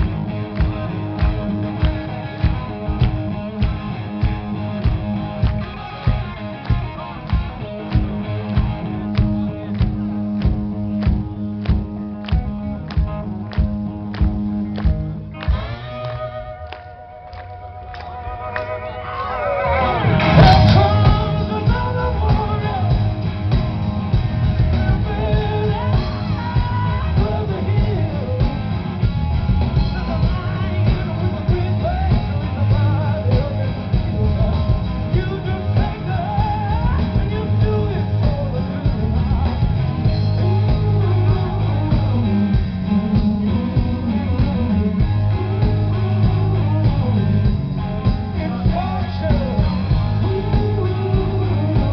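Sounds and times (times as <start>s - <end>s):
rock band playing live: 0.0s - 51.9s
man singing: 19.2s - 23.3s, 24.1s - 51.9s.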